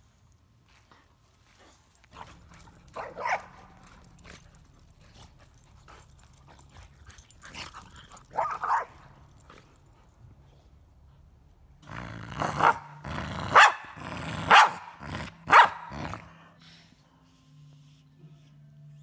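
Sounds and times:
paws scuffling on grass: 0.0 - 9.2
dogs play barking: 1.6 - 10.4, 11.0 - 16.5.

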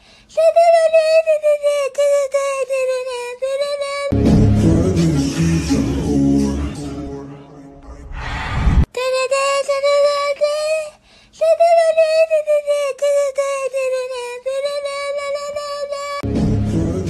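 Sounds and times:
high held voice-like tone: 5.0 - 8.9.

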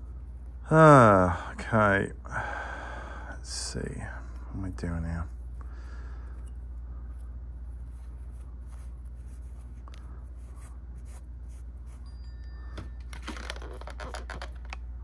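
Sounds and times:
steady low hum: 0.0 - 15.0
wipe rustling in hands: 6.6 - 12.2.

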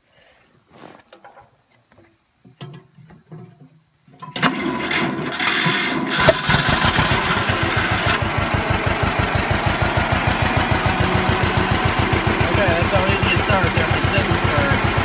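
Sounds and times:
two-cylinder engine starting and running: 4.2 - 15.0.

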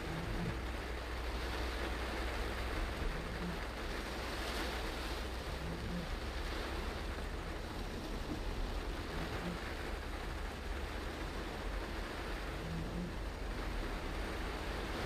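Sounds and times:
constant low rumble: 0.0 - 15.0
heavy rain: 0.0 - 15.0
tyres on wet road: 0.0 - 15.0.

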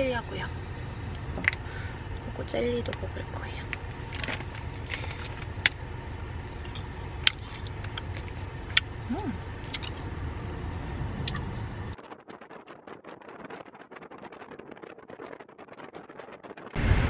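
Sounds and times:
car cabin road rumble: 0.0 - 17.0
sharp clicks and crackles: 2.8 - 5.8, 6.6 - 9.0, 9.6 - 10.1.

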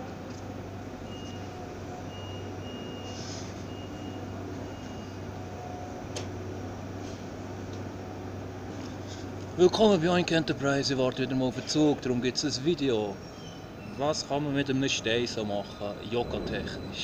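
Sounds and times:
high-pitched electronic warning beeps: 1.0 - 5.2
steady low hum: 5.3 - 17.0.

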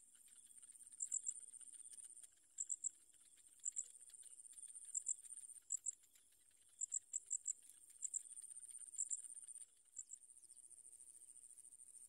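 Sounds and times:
insect chirps: 0.1 - 12.0.

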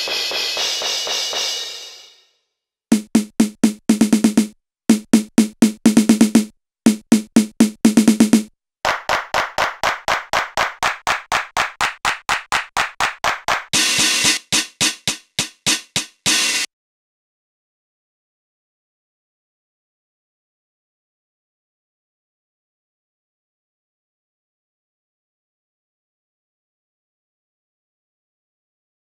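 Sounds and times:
drum machine hits in quick rolls: 0.0 - 1.9, 2.9 - 16.7.

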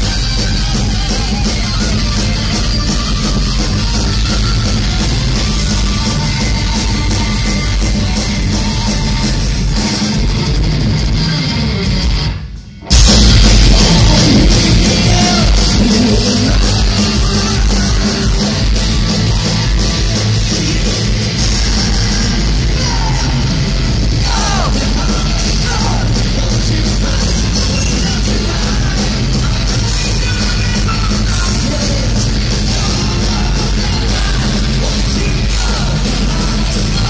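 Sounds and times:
heavy metal band playing live: 0.0 - 37.0
lead singer's voice: 13.0 - 37.0.

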